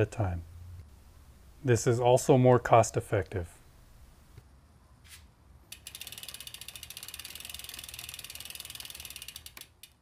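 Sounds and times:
bicycle freehub ratcheting: 5.7s - 10.0s.

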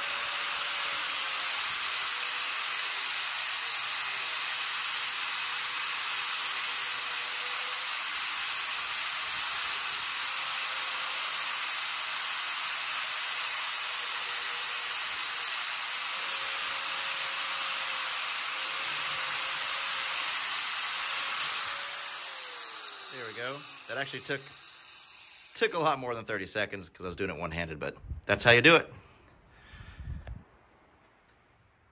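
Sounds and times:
angle grinder grinding plastic: 14.6s - 25.7s.

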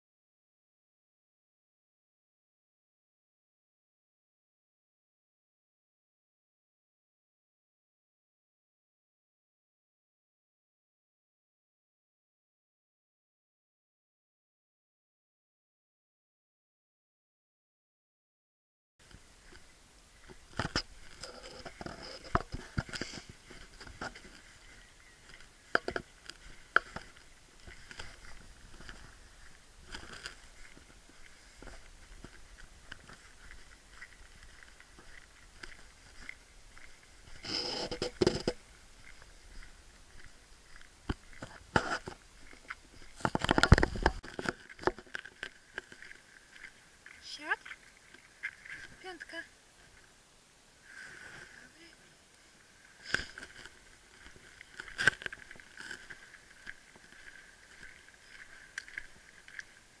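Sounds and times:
footsteps on a lane: 19.0s - 49.2s
faint steady hiss: 19.0s - 60.0s
camera handling scraping noise: 20.6s - 24.3s, 37.3s - 38.6s, 41.4s - 42.2s.

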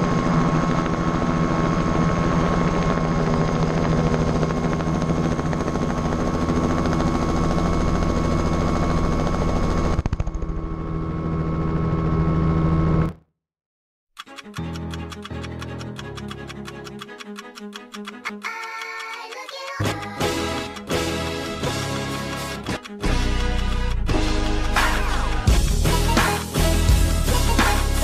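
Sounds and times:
helicopter engine whine: 0.0s - 13.0s
helicopter rotor beat: 0.0s - 13.0s, 14.2s - 28.0s.

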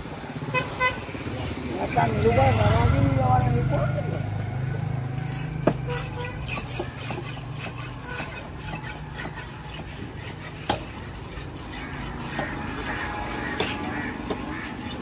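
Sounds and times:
knife scraping fish: 5.1s - 15.0s
sharp knocks: 5.6s - 11.0s, 11.8s - 14.9s.

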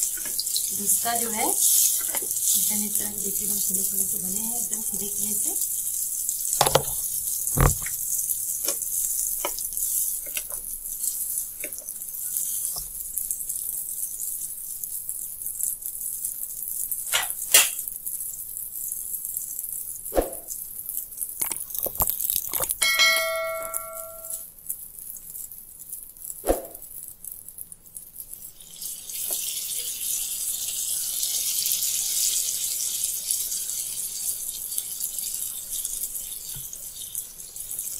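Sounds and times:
fritters sizzling in hot oil: 0.0s - 23.2s, 24.1s - 37.9s
short bell chime: 22.8s - 24.4s.

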